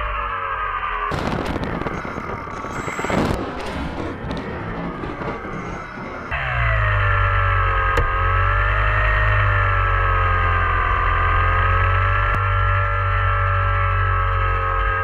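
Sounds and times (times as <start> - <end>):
electric motor and propeller whining: 0.0 - 15.0
wind rumble on microphone: 1.1 - 6.4.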